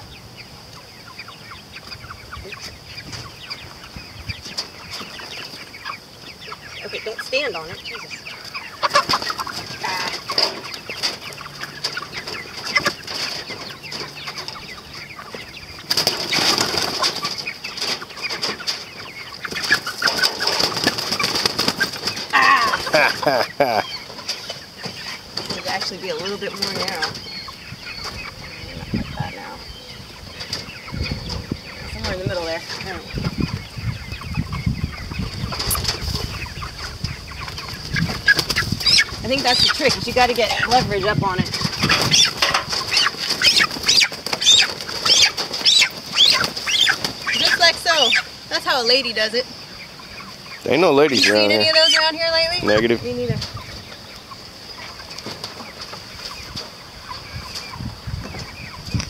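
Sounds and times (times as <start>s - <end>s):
chickens clucking and squawking: 0.0s - 59.0s
wings flapping: 8.8s - 14.5s, 15.8s - 27.2s, 35.3s - 49.0s.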